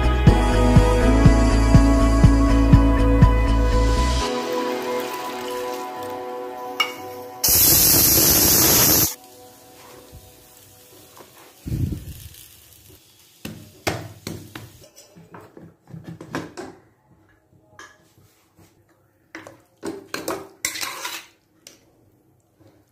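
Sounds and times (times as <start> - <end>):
metal utensils clinking on pots: 6.8 - 7.1, 19.9 - 21.4.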